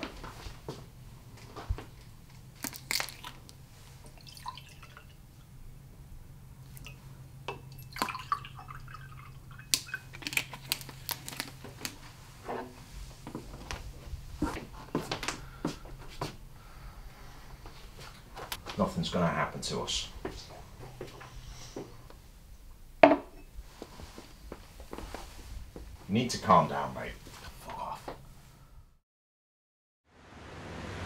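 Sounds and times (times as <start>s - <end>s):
steady low hum: 0.0s - 29.0s
water pouring into glass: 4.1s - 5.2s, 6.8s - 10.1s.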